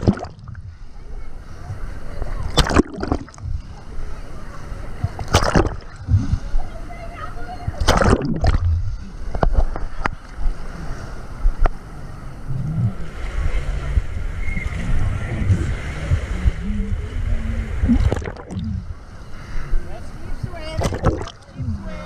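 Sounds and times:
sharp splashes: 0.0s - 0.6s, 2.4s - 3.5s, 5.1s - 6.3s, 7.8s - 8.8s, 17.8s - 18.8s, 20.8s - 21.5s
water sloshing and gurgling: 0.0s - 22.0s.

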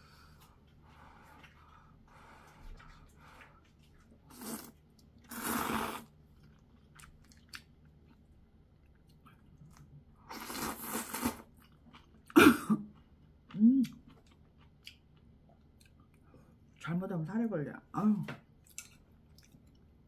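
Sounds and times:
chewing: 0.2s - 5.6s, 6.2s - 16.8s, 18.6s - 19.9s
person slurping noodles: 4.3s - 6.1s, 10.3s - 11.5s.

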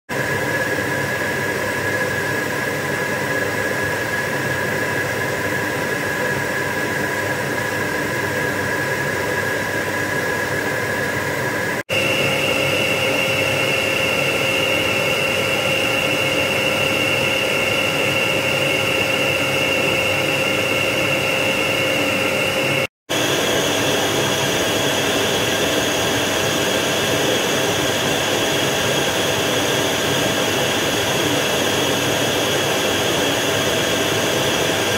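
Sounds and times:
vacuum cleaner motor whine: 0.2s - 34.9s.

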